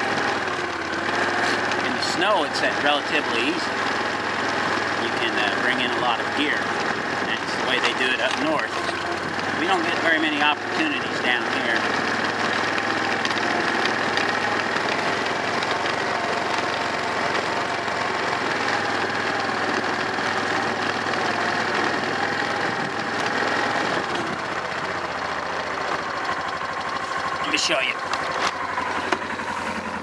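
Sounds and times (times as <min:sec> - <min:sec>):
atv engine running: 0:00.0 - 0:30.0.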